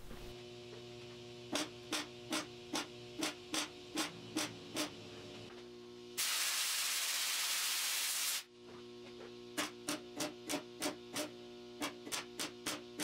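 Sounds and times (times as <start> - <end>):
compressed air hiss: 6.2 - 8.4.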